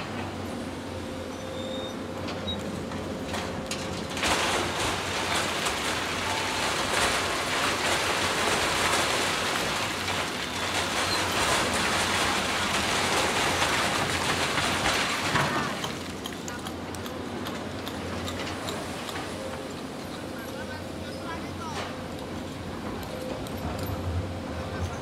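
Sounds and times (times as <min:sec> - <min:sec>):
diesel engines humming: 0:00.0 - 0:04.2
rock pouring into steel truck bed: 0:03.8 - 0:16.0.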